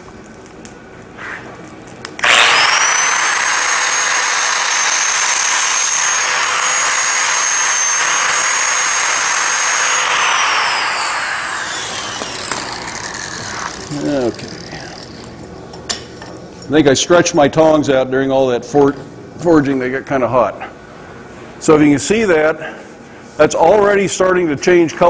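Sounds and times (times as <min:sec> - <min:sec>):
angle grinder grinding steel: 0:02.2 - 0:15.4
grinder disc spinning down: 0:02.2 - 0:15.4.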